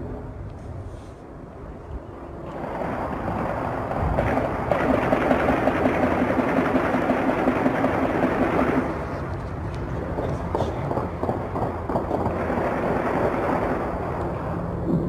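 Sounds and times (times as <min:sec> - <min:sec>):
rapid automatic gunfire: 0:02.6 - 0:09.1, 0:10.1 - 0:14.2.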